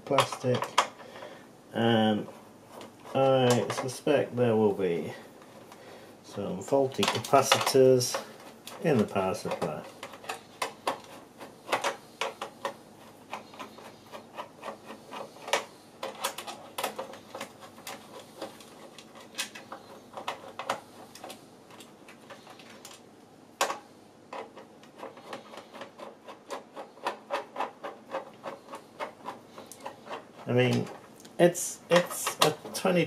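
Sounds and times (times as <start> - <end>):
screwdriver clicking and scraping metal: 6.6 - 23.0, 23.6 - 31.1, 31.9 - 33.0.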